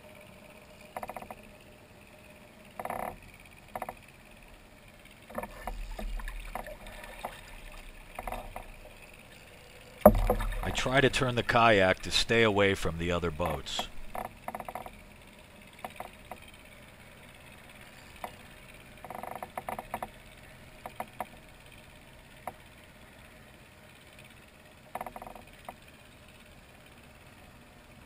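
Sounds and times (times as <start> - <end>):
fishing reel clicking: 0.9 - 1.5, 13.4 - 15.0, 25.0 - 25.9.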